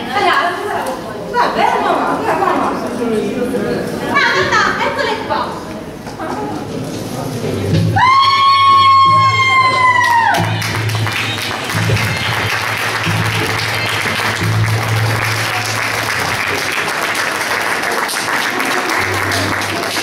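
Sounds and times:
music playing: 7.4s - 20.0s
audience applauding: 9.7s - 20.0s.

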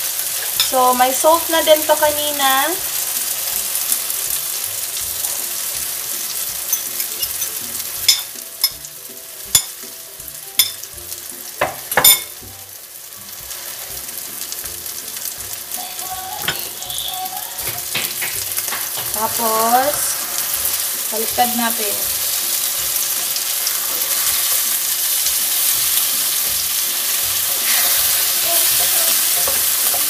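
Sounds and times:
pan sizzling: 0.0s - 30.0s
utensils clinking: 6.4s - 8.8s.

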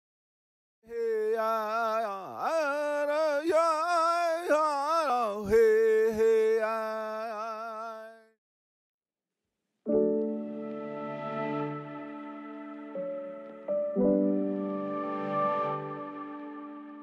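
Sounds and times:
person singing wordless notes: 0.9s - 8.2s.

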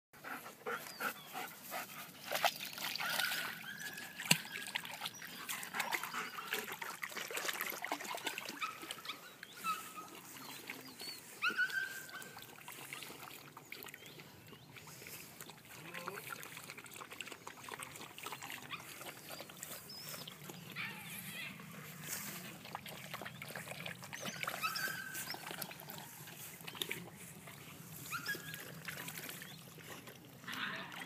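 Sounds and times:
water splashing and trickling: 0.2s - 31.0s.

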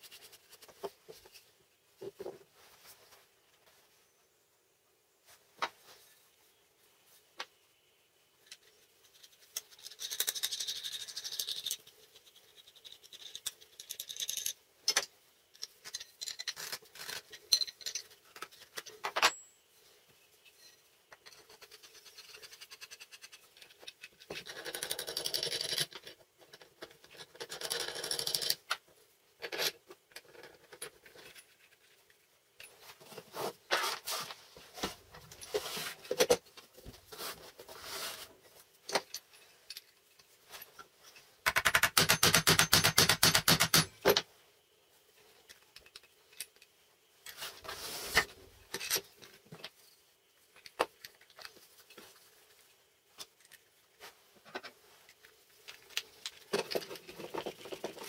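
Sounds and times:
clamp parts clicking and knocking: 12.7s - 19.5s, 54.4s - 58.0s.

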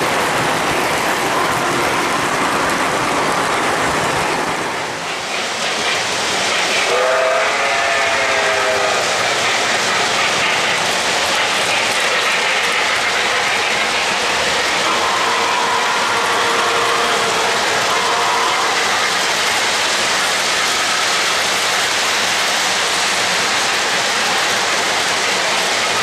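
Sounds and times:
model train wheels rumbling on track: 0.0s - 26.0s
steam whistle blast: 6.8s - 9.2s, 14.8s - 18.9s.

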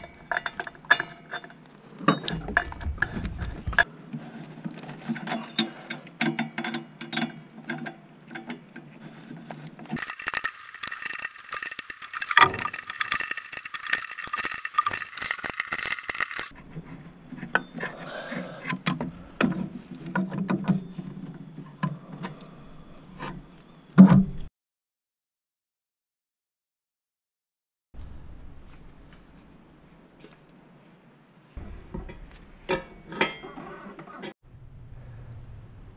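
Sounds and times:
tools and metal parts clinking: 0.0s - 3.9s, 4.6s - 16.6s, 32.0s - 34.2s.

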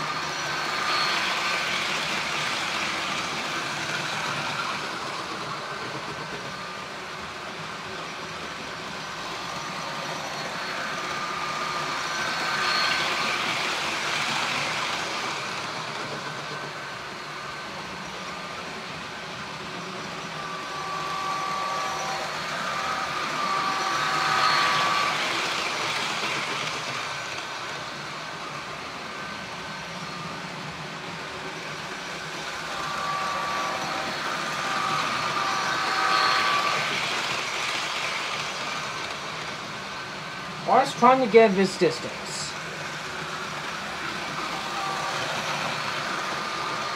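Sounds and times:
model trains rolling: 0.0s - 46.9s
short high-pitched tones: 20.4s - 25.6s, 32.6s - 37.4s.

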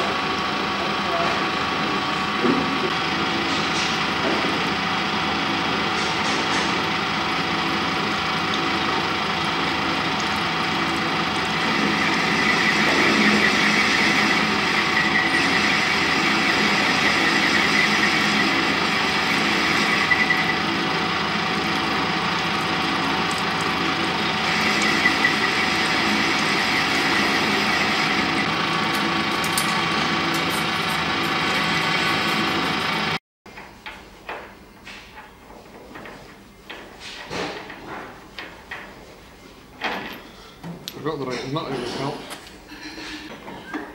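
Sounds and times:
lathe machine hum: 0.0s - 33.2s.

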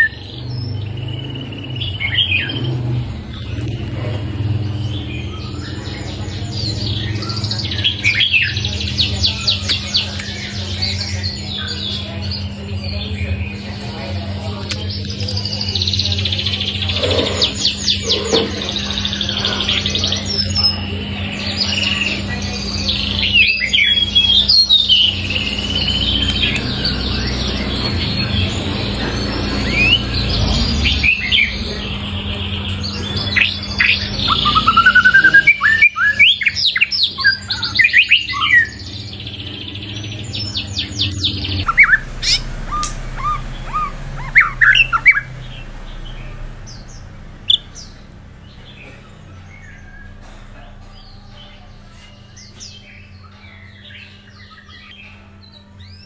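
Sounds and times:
bird singing whistles and trills: 14.8s - 50.2s.

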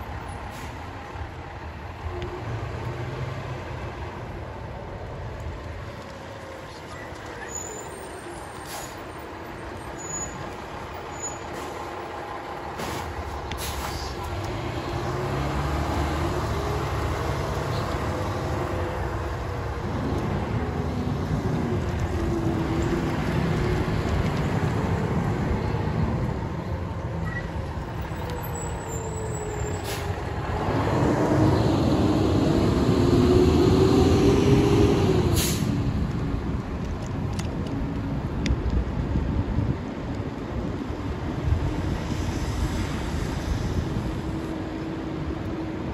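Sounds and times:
air brake hisses: 8.6s - 9.1s, 12.8s - 14.2s, 29.7s - 30.2s, 35.4s - 35.7s.

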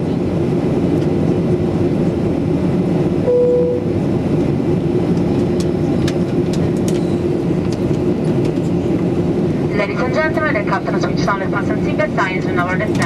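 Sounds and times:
jet engines humming: 0.0s - 13.0s
brief single tone: 3.3s - 4.0s
airflow rushing: 3.8s - 12.6s.

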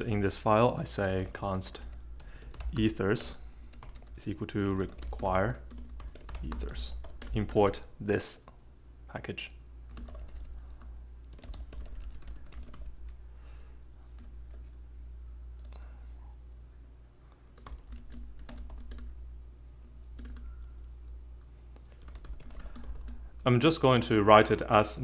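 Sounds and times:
typing on computer keyboard: 1.0s - 7.6s, 9.9s - 13.1s, 17.6s - 19.1s, 20.2s - 20.5s, 22.0s - 23.2s.

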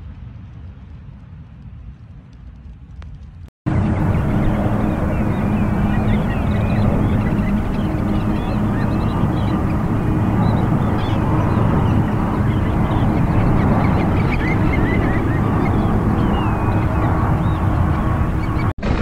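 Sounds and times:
jet engines rumbling: 0.0s - 19.0s
birds chirping: 3.7s - 18.7s.

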